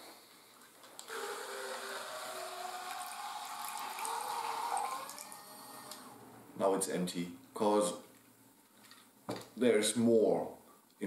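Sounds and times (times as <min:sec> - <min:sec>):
small electric water pump running: 0:01.1 - 0:06.2
water stream filling mug: 0:02.1 - 0:05.7.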